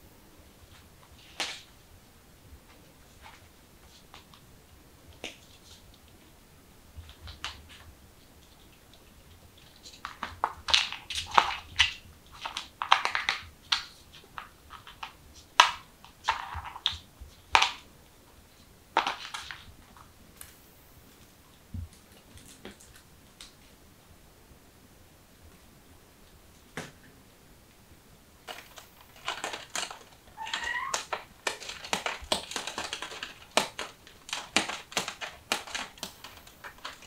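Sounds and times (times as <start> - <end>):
kitten claws scratching and clicking: 7.1 - 17.8, 28.4 - 37.0.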